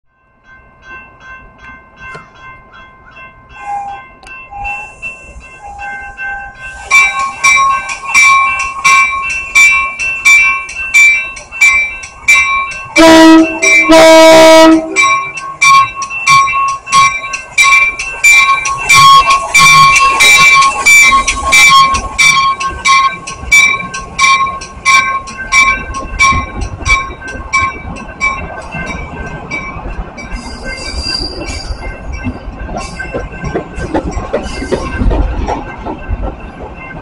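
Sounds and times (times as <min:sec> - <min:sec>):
crossing warning bell ringing: 0:00.1 - 0:37.0
train horn blasts: 0:13.0 - 0:15.1.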